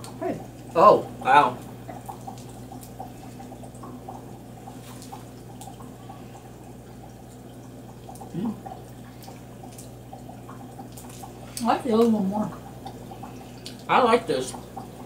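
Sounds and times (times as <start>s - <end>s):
electrical hum: 0.0s - 15.0s
chewing with mouth clicks: 7.3s - 12.1s, 13.2s - 13.9s
person humming: 8.3s - 8.6s.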